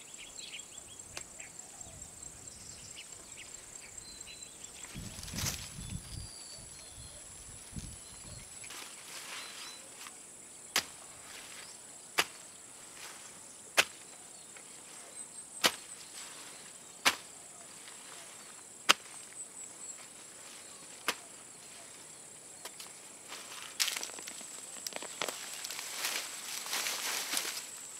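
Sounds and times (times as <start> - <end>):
hoe chopping into soil: 10.7 - 11.5, 12.2 - 12.5, 13.8 - 14.0, 15.6 - 16.0, 17.0 - 17.4, 18.8 - 19.3, 21.0 - 21.3.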